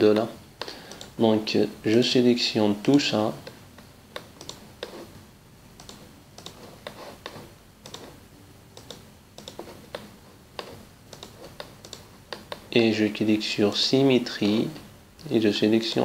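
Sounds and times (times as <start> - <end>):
computer mouse clicking: 0.2 - 1.2, 2.9 - 5.1, 5.8 - 8.2, 8.8 - 12.7.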